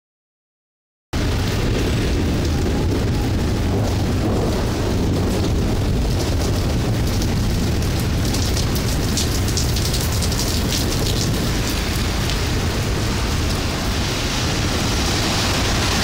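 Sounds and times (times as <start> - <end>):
heavy rain downpour: 1.2 - 16.0
low thunder rumble: 1.2 - 16.0.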